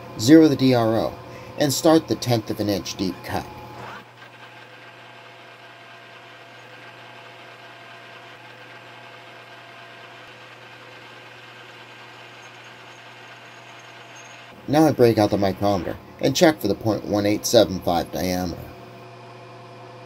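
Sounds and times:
metal lathe humming: 0:00.0 - 0:19.2
lathe tool cutting steel: 0:00.1 - 0:18.5.

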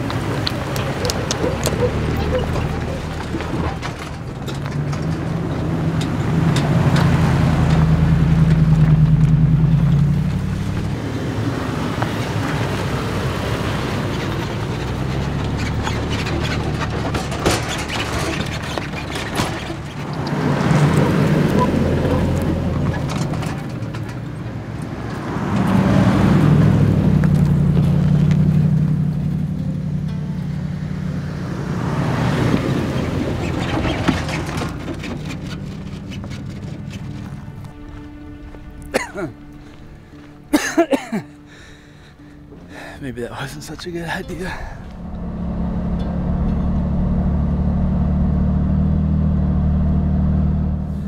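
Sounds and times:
rough tyre noise: 0:00.0 - 0:51.0
vehicle engine accelerating: 0:00.0 - 0:51.0.

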